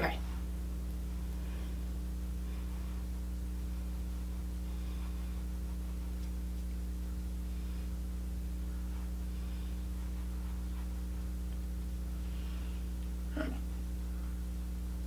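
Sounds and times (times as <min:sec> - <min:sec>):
brush swishing on skin: 0:00.0 - 0:14.8
low electrical hum: 0:00.0 - 0:15.0.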